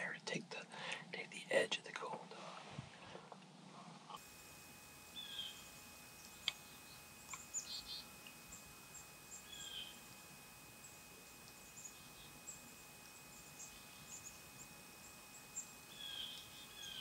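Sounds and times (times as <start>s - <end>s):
small birds chirping: 4.8s - 17.0s.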